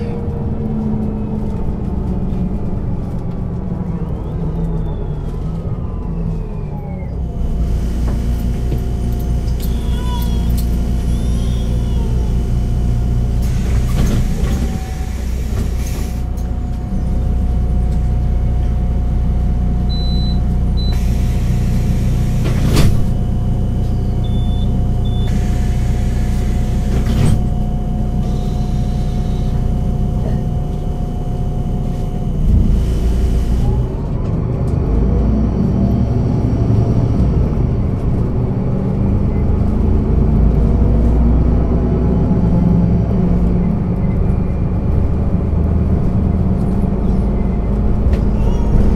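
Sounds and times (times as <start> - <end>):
bus diesel engine idling: 6.8 - 48.9.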